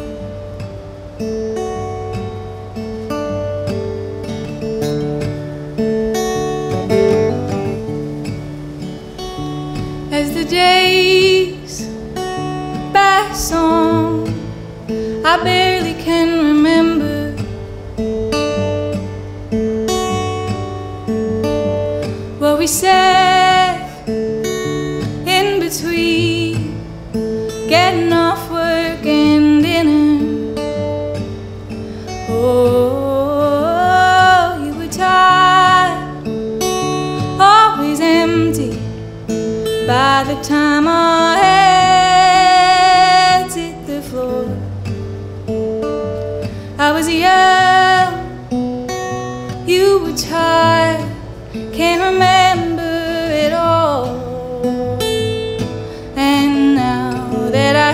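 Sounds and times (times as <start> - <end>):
strummed acoustic guitar: 0.0 - 57.9
woman singing: 9.4 - 17.6, 19.9 - 31.3, 32.1 - 44.7, 46.4 - 57.9.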